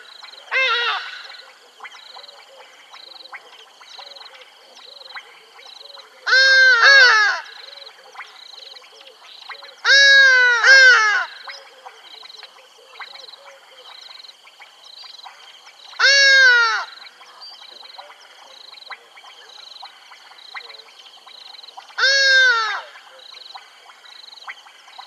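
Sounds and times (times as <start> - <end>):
harsh bird calls: 0.0 - 2.5, 15.9 - 18.7, 21.8 - 23.3
pulsing chirping chorus: 0.0 - 25.0.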